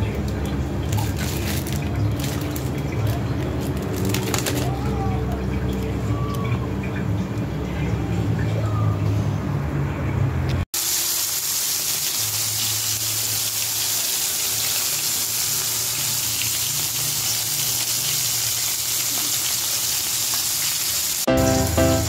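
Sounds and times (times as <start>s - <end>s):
fish frying in hot oil: 10.8s - 21.3s.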